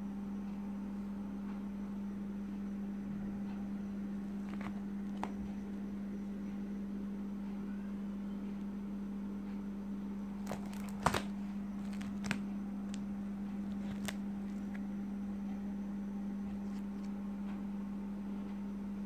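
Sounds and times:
steady low hum: 0.0 - 19.0
plastic pages clicking and crinkling: 4.3 - 5.6, 10.4 - 14.8.

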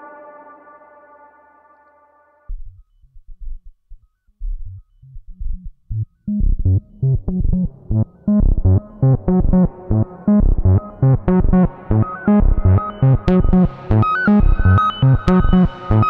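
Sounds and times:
synthesizer bass notes: 6.3 - 16.0.

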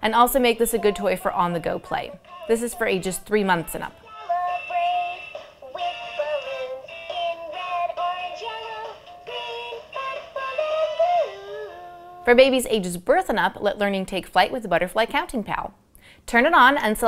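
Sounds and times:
tinny toy speaker melody: 4.0 - 12.2.

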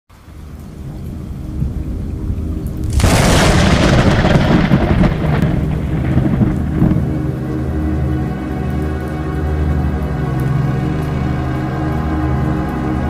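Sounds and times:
low droning music: 0.1 - 13.0
thunderclap: 2.8 - 7.4.

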